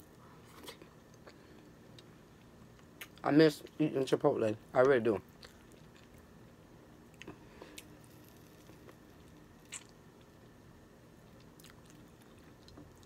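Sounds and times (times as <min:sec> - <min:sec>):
person chewing food: 0:05.3 - 0:10.4, 0:11.2 - 0:13.0.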